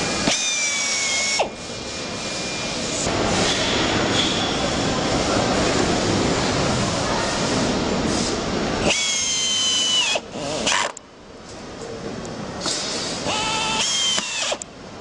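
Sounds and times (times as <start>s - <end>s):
loud steady rushing noise: 1.7s - 8.8s
electric screwdriver motor whining: 13.3s - 14.6s.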